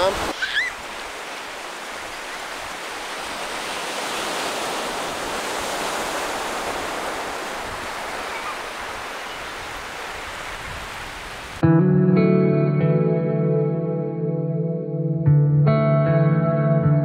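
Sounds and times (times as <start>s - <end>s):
waves breaking on beach: 0.0s - 11.6s.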